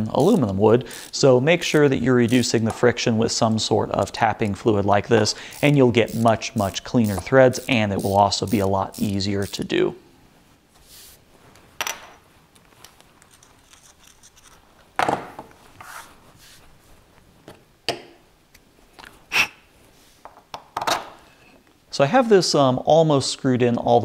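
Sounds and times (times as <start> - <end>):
tools and parts knocking on wood: 15.0 - 15.5.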